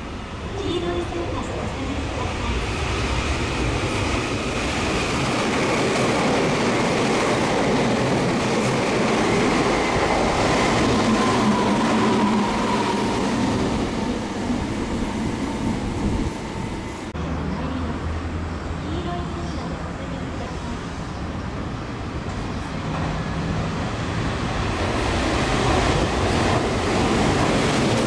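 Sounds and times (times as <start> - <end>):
train wheels on rail: 0.6 - 17.2, 22.2 - 28.0.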